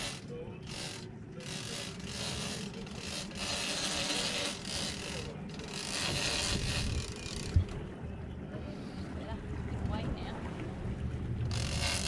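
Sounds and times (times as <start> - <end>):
fishing reel ratcheting: 0.0 - 7.6, 11.5 - 12.0.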